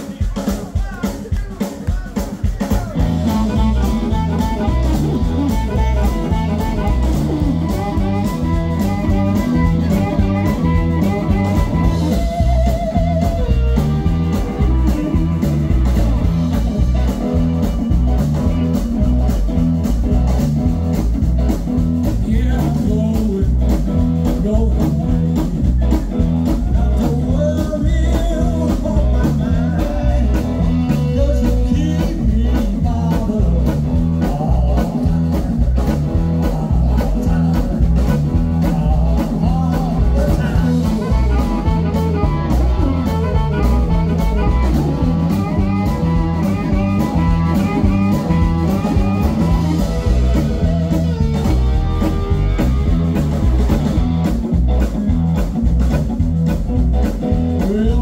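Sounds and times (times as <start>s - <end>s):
person singing: 0.0s - 19.4s, 22.0s - 53.0s, 57.4s - 58.0s
blues-rock band playing: 0.0s - 58.0s
amplified harmonica: 3.0s - 22.0s, 36.0s - 55.7s.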